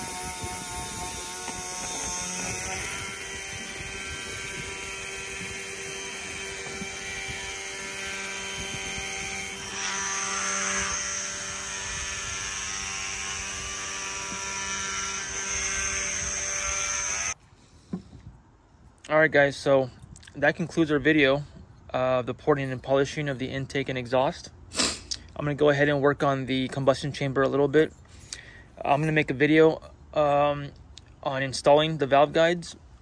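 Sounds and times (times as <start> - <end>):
rotary tool whining: 0.0 - 17.4.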